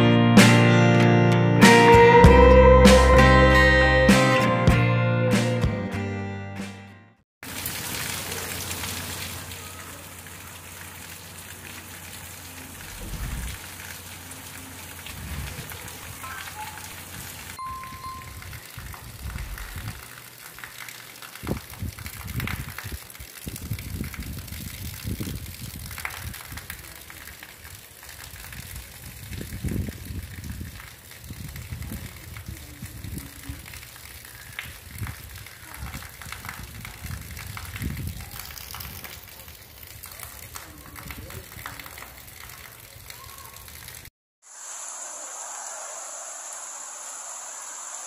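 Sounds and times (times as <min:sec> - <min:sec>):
heavy rain pouring: 0:07.4 - 0:48.0
low thuds and rumbles: 0:12.9 - 0:13.6.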